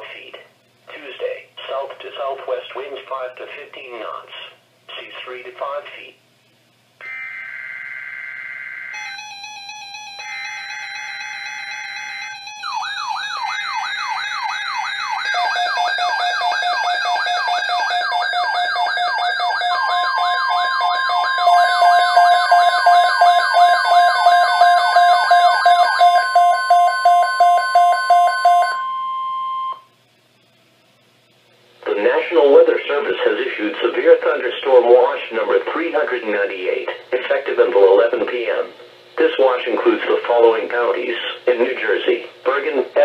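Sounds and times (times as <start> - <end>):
steady alert tone: 7.0 - 26.1
warbling siren-like alarm: 7.0 - 29.8.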